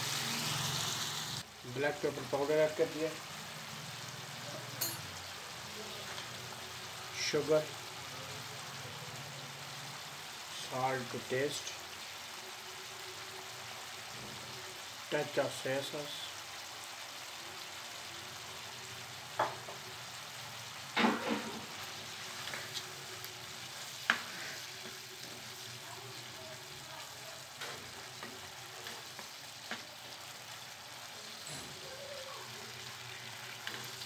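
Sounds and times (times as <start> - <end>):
food sizzling and bubbling in wok: 0.0 - 34.0
wooden spatula stirring: 21.7 - 30.2.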